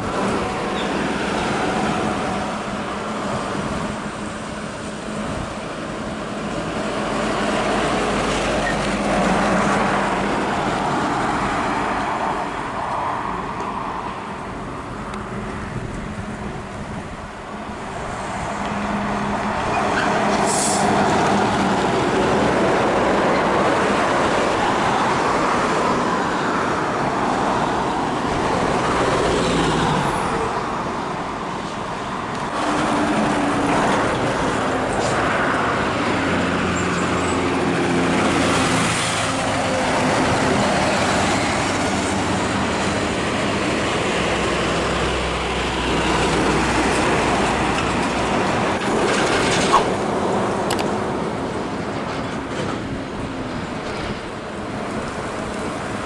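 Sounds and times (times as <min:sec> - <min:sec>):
diesel trucks pulling away: 0:14.2 - 0:56.0.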